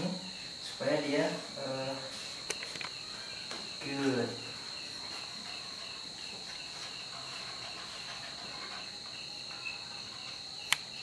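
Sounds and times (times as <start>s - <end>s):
insect trill: 0.0s - 11.0s
sharp click: 10.7s - 10.9s.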